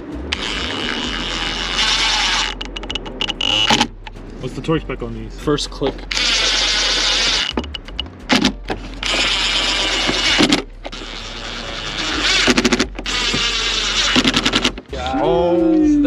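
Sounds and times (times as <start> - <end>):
cordless drill running: 0.3 - 2.6, 6.1 - 7.6, 9.0 - 14.8
drill clutch clicking: 0.3 - 4.0, 6.1 - 14.9.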